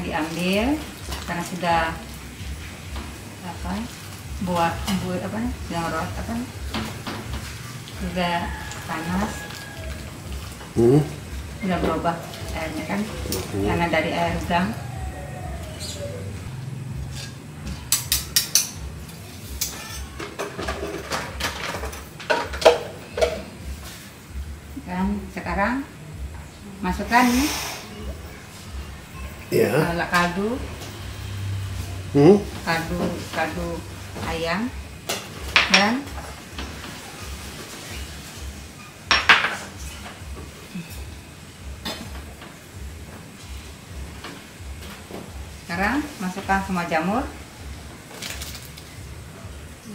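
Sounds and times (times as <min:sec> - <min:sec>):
metal utensils clinking on pot: 0:17.1 - 0:18.8.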